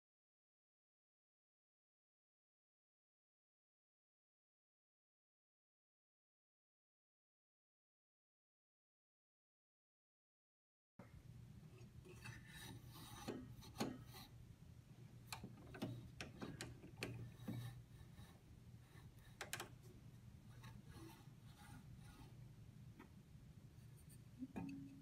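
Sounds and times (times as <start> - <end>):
low steady hum: 11.0 - 25.0
knob being turned: 12.2 - 14.2, 15.3 - 18.2, 19.2 - 19.8
clicks: 19.4 - 19.8.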